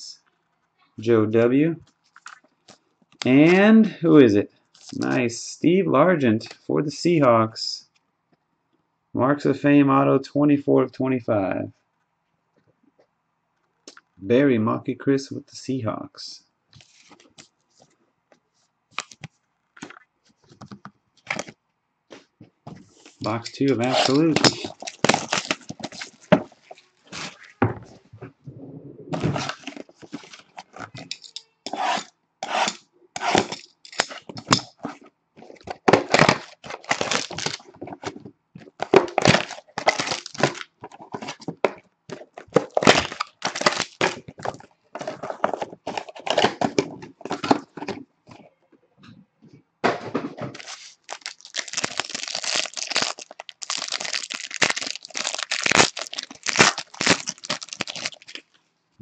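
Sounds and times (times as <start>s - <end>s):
plastic wrappers tearing and crinkling: 21.2s - 21.5s, 23.1s - 27.6s, 29.2s - 32.1s, 35.5s - 38.1s, 38.7s - 46.8s, 50.6s - 58.6s
cardboard box being opened: 29.1s - 31.0s, 50.5s - 58.3s.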